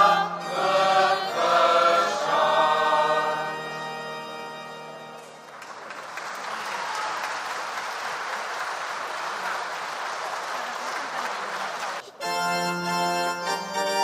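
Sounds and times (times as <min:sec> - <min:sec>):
held organ-like notes: 0:00.0 - 0:05.6, 0:12.2 - 0:14.0
audience applauding: 0:05.1 - 0:12.1.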